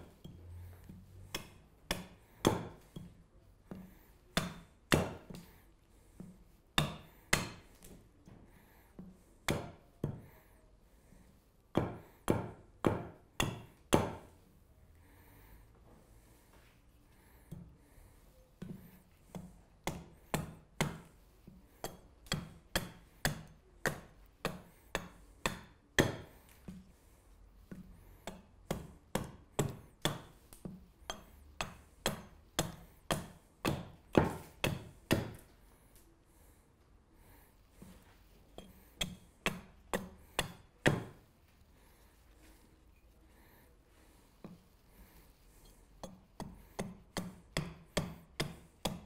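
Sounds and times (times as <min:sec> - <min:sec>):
axe chopping wood: 0:01.3 - 0:02.8, 0:04.4 - 0:05.5, 0:06.8 - 0:07.8, 0:11.7 - 0:14.3, 0:19.3 - 0:21.1, 0:22.3 - 0:26.3, 0:31.6 - 0:35.5, 0:39.0 - 0:41.2, 0:46.4 - 0:49.0.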